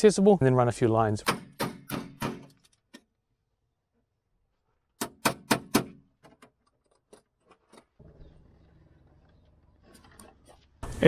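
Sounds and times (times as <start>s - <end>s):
hammer striking metal bracket: 1.2s - 2.6s, 5.0s - 6.0s.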